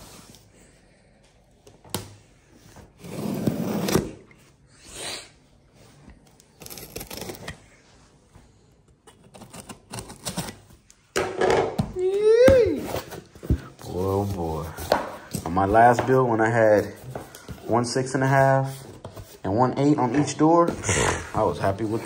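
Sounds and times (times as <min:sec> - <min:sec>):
cardboard scraping: 0:02.9 - 0:04.2, 0:12.7 - 0:22.0
box cutter slicing tape: 0:09.2 - 0:10.6.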